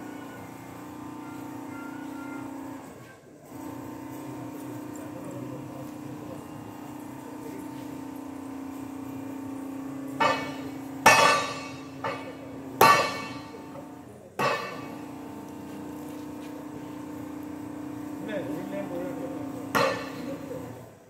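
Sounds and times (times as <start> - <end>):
low machine hum: 0.0 - 21.0
sharp metal clanks: 10.2 - 13.6, 14.4 - 15.0, 19.7 - 20.3.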